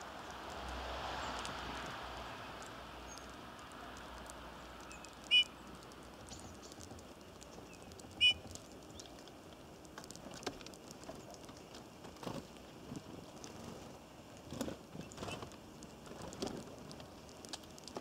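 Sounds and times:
faint outdoor background: 0.0s - 18.0s
bird chirps: 4.8s - 5.6s, 7.6s - 9.1s.

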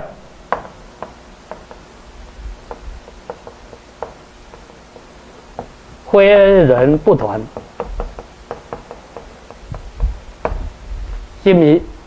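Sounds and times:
chalk ticking on blackboard: 0.5s - 5.9s, 6.8s - 10.8s.

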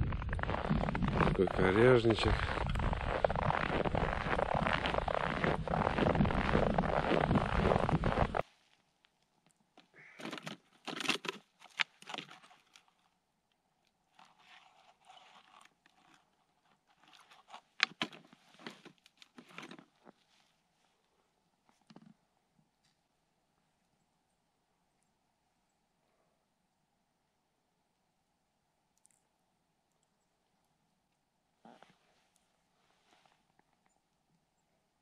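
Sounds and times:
footsteps crunching through snow: 0.0s - 8.8s.

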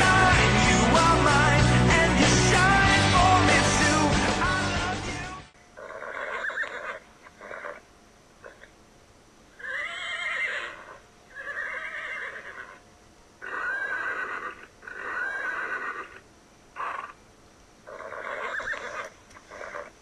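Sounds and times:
horse whinnying: 5.8s - 7.8s, 9.6s - 12.8s, 13.4s - 16.2s, 17.9s - 20.0s.

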